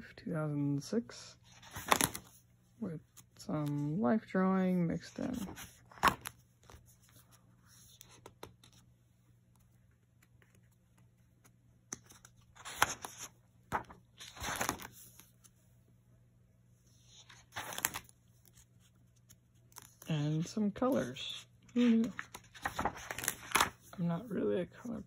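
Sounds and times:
paper pages rustling: 1.5 - 2.4, 5.0 - 8.9, 9.5 - 15.6, 16.9 - 24.0.

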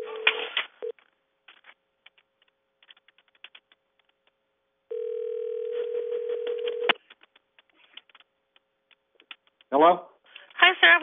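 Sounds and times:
telephone ringback tone: 0.0 - 0.9, 4.9 - 7.0.

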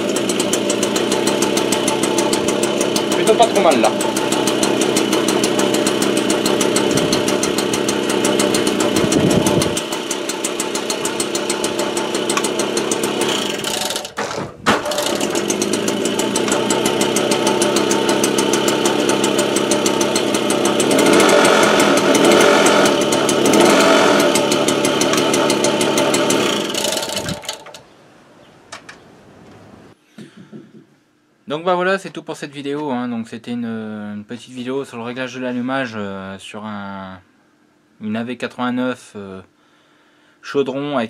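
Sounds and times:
moped engine running: 0.0 - 27.8.

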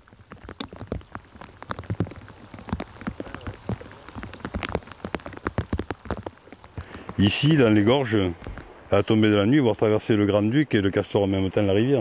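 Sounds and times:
water drops pattering: 0.0 - 8.7.

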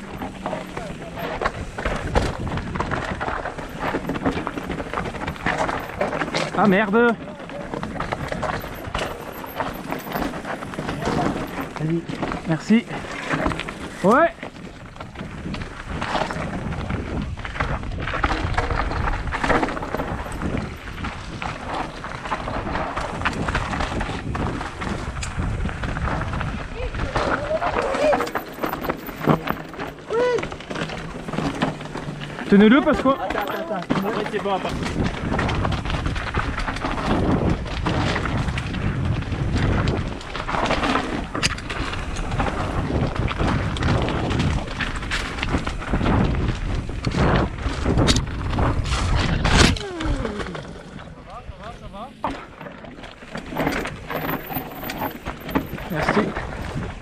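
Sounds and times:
bike rattling: 0.0 - 57.0
tyres crunching on stones: 0.0 - 57.0
wind rumbling on microphone: 0.0 - 57.0.

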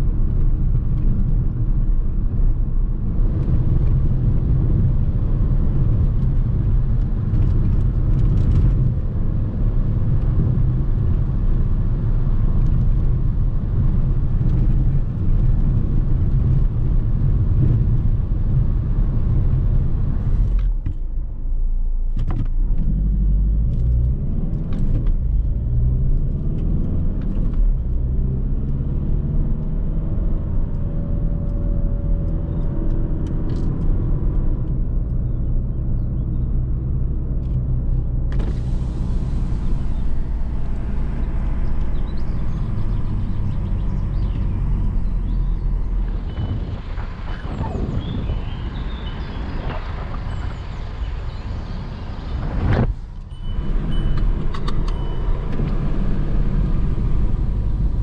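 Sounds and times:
diesel car engine running: 0.0 - 58.0
road noise: 0.0 - 58.0.

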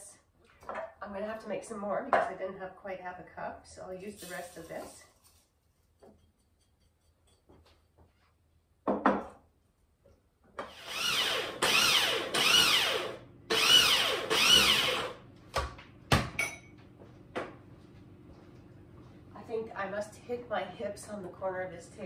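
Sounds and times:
electric grinder whine: 10.7 - 15.2.

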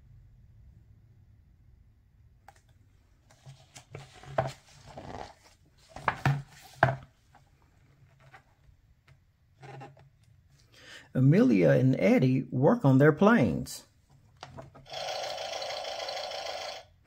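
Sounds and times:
paper rustling: 3.2 - 8.7.

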